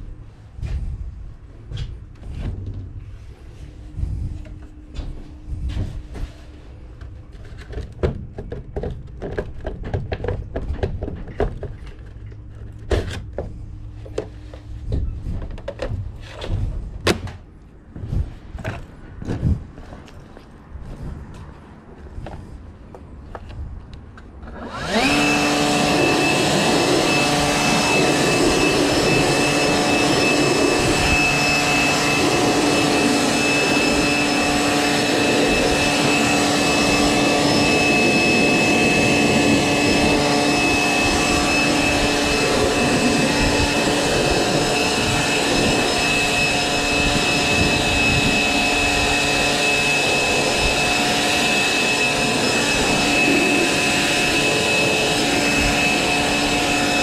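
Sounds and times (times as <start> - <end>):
leaf blower high whine: 24.4 - 57.0.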